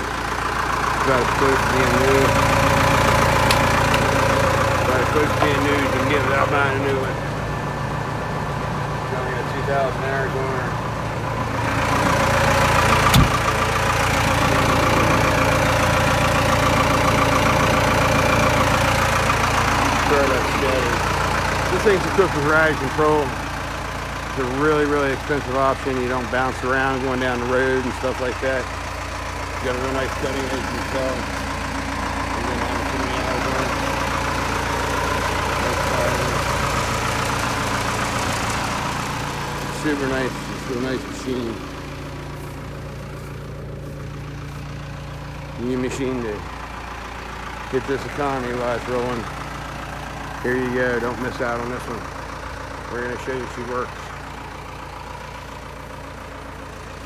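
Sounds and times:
diesel engine idling: 0:00.0 - 0:57.0
thump: 0:13.1 - 0:13.4.

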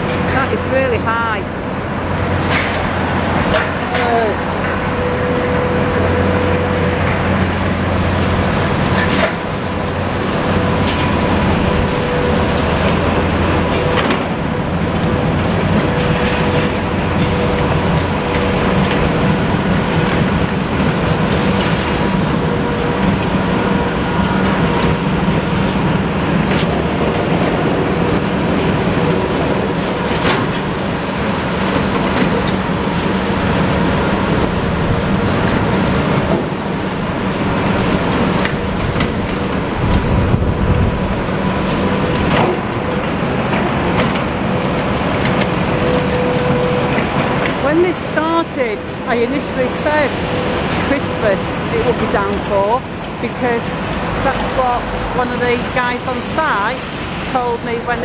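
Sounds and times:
diesel machinery drone: 0:00.0 - 0:58.0
knocks and clanks: 0:02.1 - 0:09.7, 0:12.8 - 0:34.6, 0:35.2 - 0:47.8.

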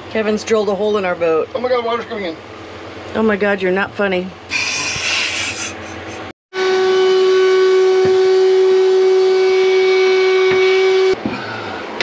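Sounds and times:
short hissing: 0:04.5 - 0:06.2.

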